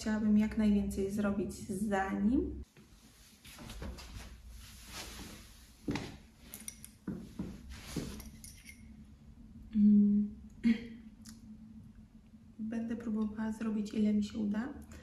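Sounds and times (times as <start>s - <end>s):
clothing and chair rustling: 2.7s - 8.6s
metal knitting needles clinking: 6.5s - 7.0s, 8.1s - 8.9s.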